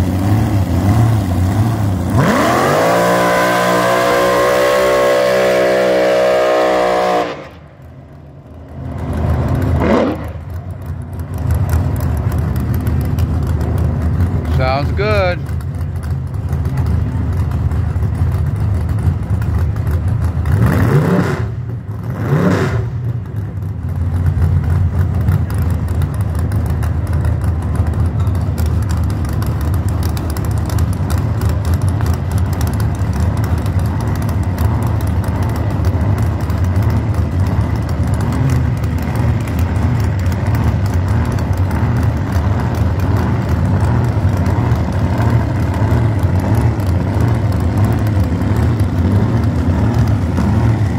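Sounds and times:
dragster engine rumbling and revving: 0.0 - 50.9.

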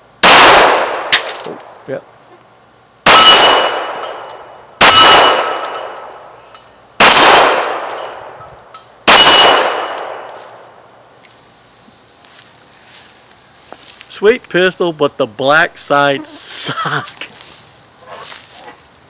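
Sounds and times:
pistol shots: 0.2 - 1.6, 3.0 - 6.1, 7.0 - 8.4, 9.0 - 10.3
steel plate target ringing: 3.1 - 10.2.

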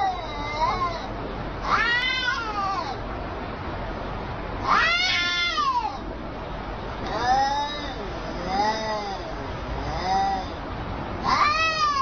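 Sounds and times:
cats yowling: 0.0 - 3.0, 4.6 - 6.0, 7.1 - 10.6, 11.2 - 12.0.

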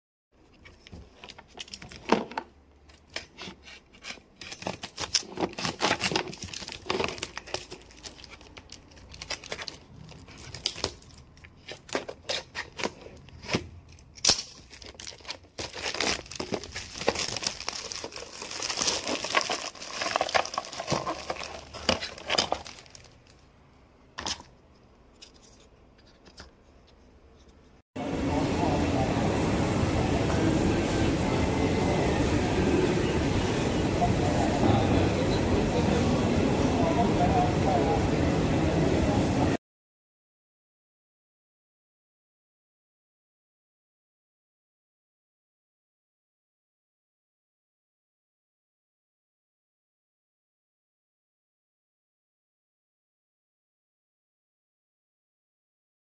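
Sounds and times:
packaging tearing and rustling: 2.9 - 23.4.

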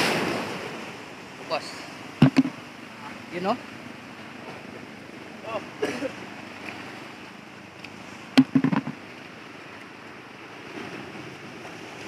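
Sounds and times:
surf washing against rocks: 0.0 - 12.0
sharp knock: 2.2 - 2.6, 8.4 - 9.0
short thumps: 2.2 - 2.6, 8.4 - 9.0.

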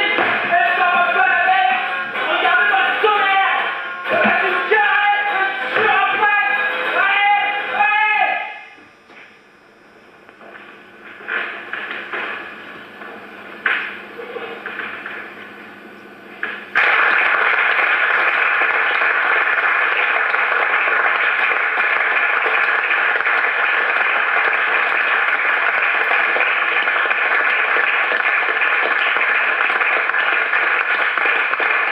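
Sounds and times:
audience applause: 16.4 - 31.9.

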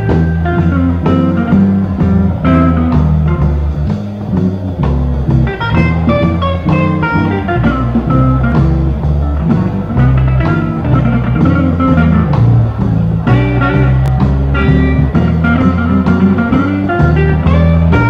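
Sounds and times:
bass line: 0.0 - 18.0
blues guitar phrases: 0.0 - 18.0
drums: 0.0 - 18.0.

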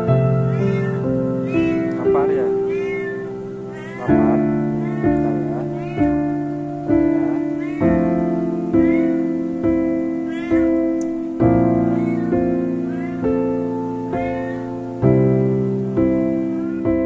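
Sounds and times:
soft piano music: 0.0 - 17.0
kitten mewing: 0.5 - 8.1, 8.8 - 9.3, 10.3 - 10.8, 11.8 - 13.4, 14.2 - 14.7.

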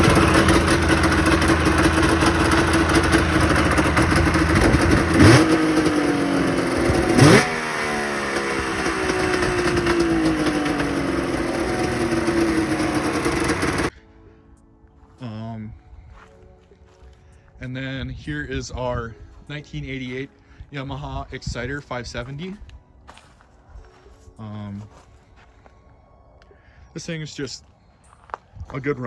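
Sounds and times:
engine throttle blips: 0.0 - 13.9
two-stroke engine idling: 0.0 - 13.9.

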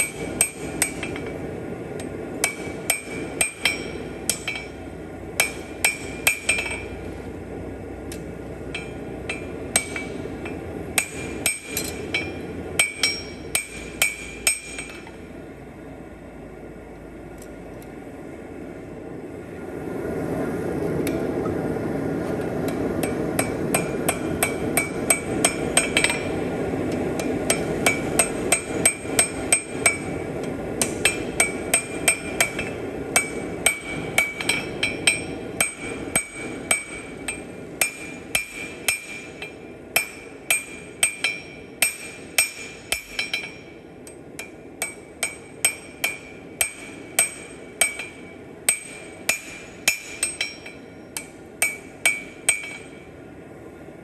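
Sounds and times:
hammer striking steel on anvil: 0.0 - 1.4, 2.0 - 4.8, 5.4 - 7.0, 8.1 - 15.2, 23.0 - 53.1
steady rushing noise: 0.0 - 54.0.

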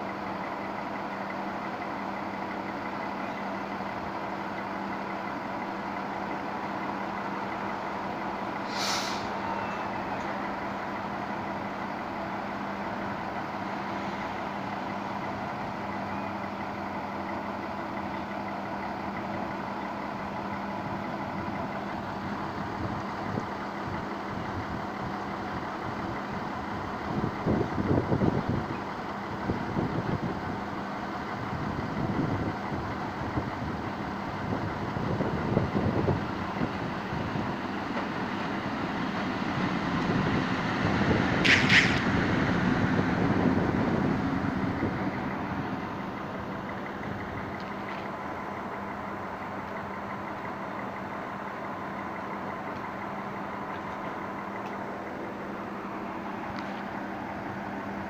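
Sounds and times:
train engine hum: 0.0 - 58.0.

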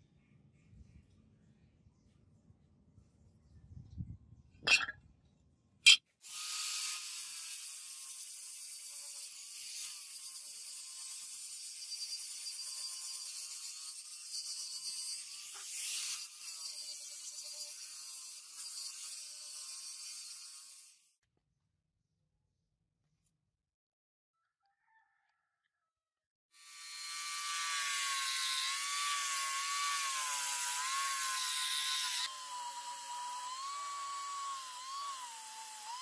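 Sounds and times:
angle grinder grinding metal: 26.6 - 36.0.

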